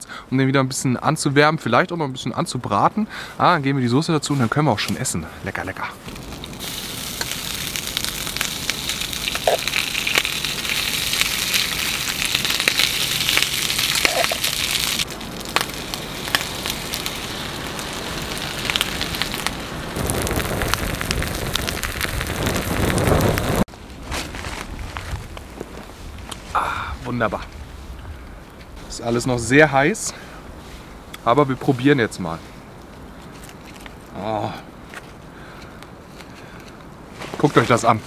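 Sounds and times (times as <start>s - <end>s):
food frying with crackles: 6.0s - 23.7s
deep rushing noise: 14.8s - 23.7s.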